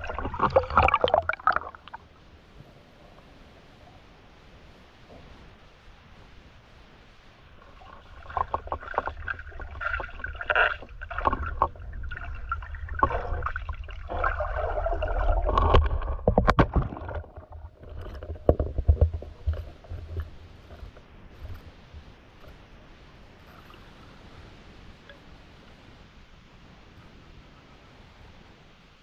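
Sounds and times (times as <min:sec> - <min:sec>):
underwater gurgling and sloshing: 0:00.0 - 0:29.0
sharp clicks and knocks: 0:15.5 - 0:21.6.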